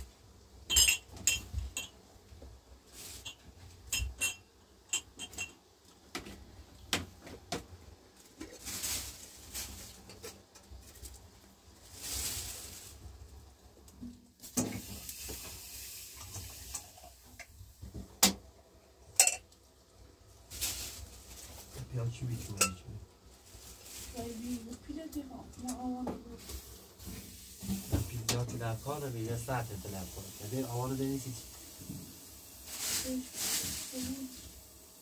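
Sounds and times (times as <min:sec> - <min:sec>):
knocks and clinks of objects: 0:00.7 - 0:02.0, 0:03.1 - 0:05.6, 0:19.1 - 0:19.5, 0:22.4 - 0:22.9
soft rustling hisses: 0:02.8 - 0:03.5, 0:08.3 - 0:13.5, 0:20.4 - 0:34.6.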